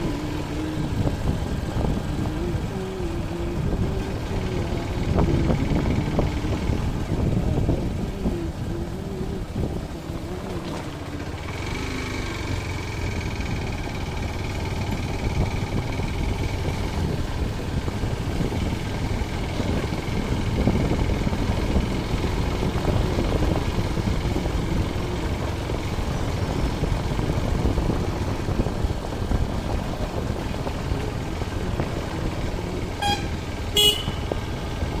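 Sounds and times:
wind buffeting microphone: 0:00.0 - 0:11.6, 0:12.2 - 0:35.0
small vehicle rumbling on rough road: 0:00.0 - 0:35.0
horn toot: 0:33.0 - 0:34.4.

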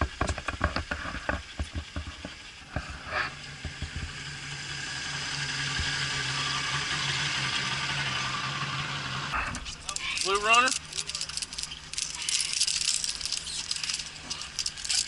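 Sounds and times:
sharp taps and knocks: 0:00.0 - 0:03.0, 0:03.6 - 0:04.2
outboard motor idling: 0:00.0 - 0:15.0.

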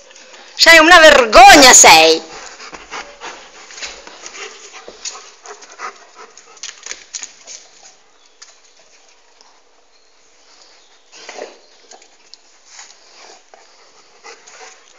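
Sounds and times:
dog moving with clicks and rustles: 0:03.7 - 0:09.2.

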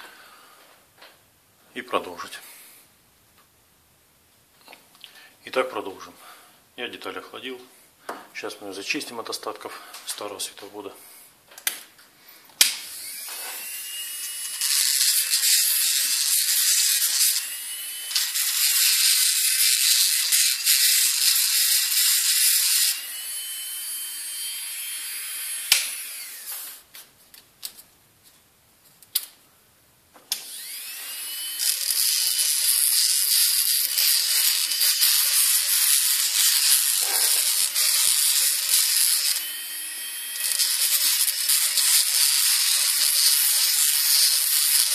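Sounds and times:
rotary tool grinding with whine: 0:12.9 - 0:26.8, 0:30.4 - 0:44.9.

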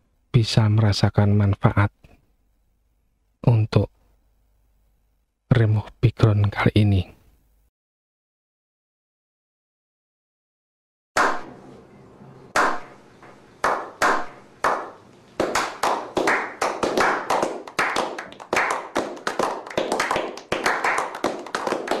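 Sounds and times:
men clapping: 0:13.6 - 0:22.0.

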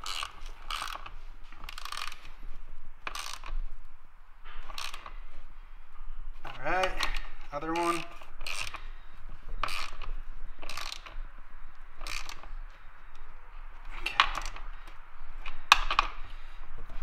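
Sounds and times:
hand ratchet clicking: 0:00.0 - 0:02.3, 0:03.0 - 0:03.7, 0:04.6 - 0:05.2, 0:06.5 - 0:08.9, 0:09.6 - 0:16.3.

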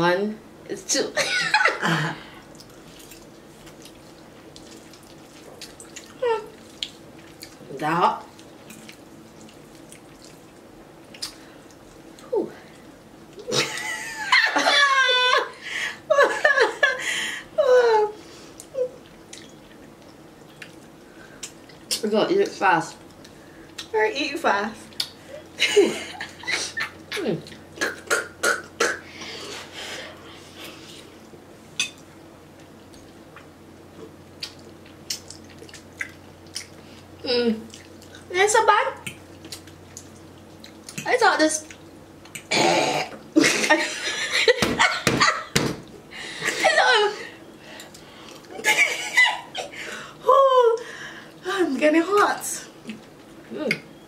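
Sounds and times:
faint low hum: 0:00.0 - 0:54.0
wet mouth clicks: 0:11.1 - 0:11.4, 0:27.4 - 0:29.0, 0:34.4 - 0:36.8.

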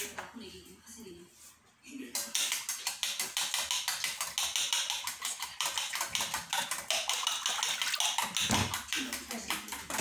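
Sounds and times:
fork beating egg in metal bowl: 0:02.1 - 0:10.0.

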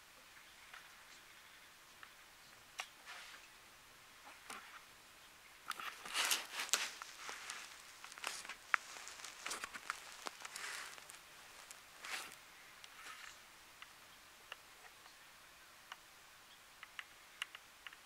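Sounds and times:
close rustling: 0:05.7 - 0:13.4
sharp little clicks: 0:16.8 - 0:18.0.

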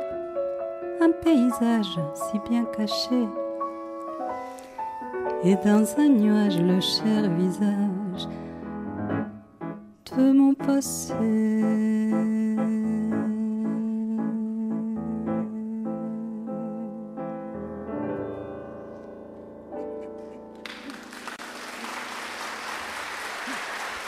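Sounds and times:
slow piano music: 0:00.0 - 0:24.0
audience applause: 0:20.5 - 0:24.0.

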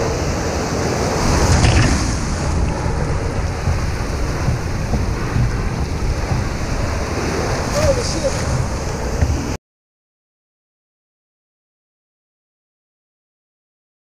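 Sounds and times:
ocean waves breaking: 0:00.0 - 0:09.6
wind buffeting microphone: 0:00.0 - 0:09.6.

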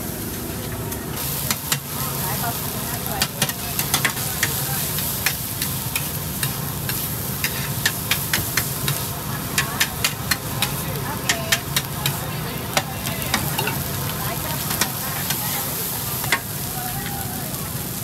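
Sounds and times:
food sizzling in a wok: 0:01.2 - 0:18.0
metal spatulas scraping a wok: 0:03.2 - 0:12.2.

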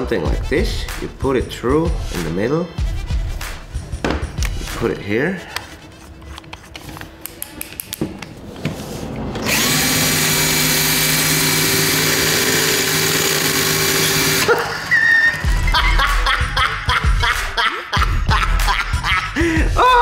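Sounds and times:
drill motor spinning with hiss: 0:09.4 - 0:14.5.

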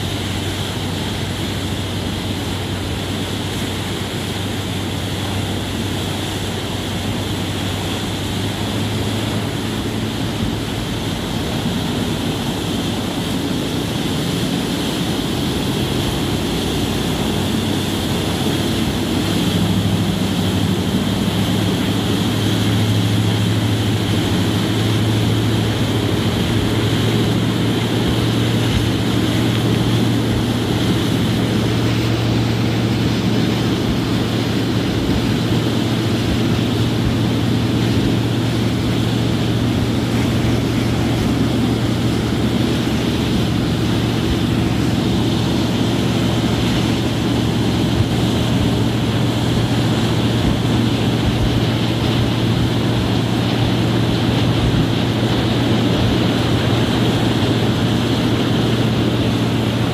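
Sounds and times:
ferry engine drone: 0:00.0 - 0:59.9
rushing spray of jet wake: 0:00.0 - 0:59.9.

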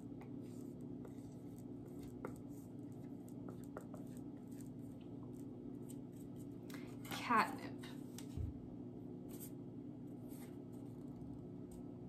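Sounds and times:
steady low hum: 0:00.0 - 0:12.0
marker scratching on board: 0:00.3 - 0:06.5.

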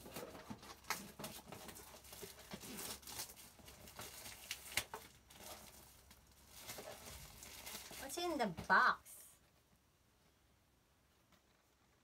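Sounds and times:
plastic wrap crinkling and tearing: 0:00.0 - 0:08.6
plastic wrap snap: 0:02.6 - 0:05.3.

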